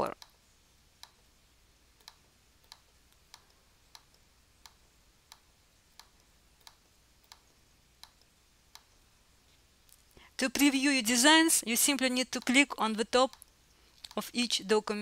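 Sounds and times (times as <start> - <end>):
computer mouse clicks: 1.0 - 1.2, 2.0 - 9.0, 13.3 - 14.2.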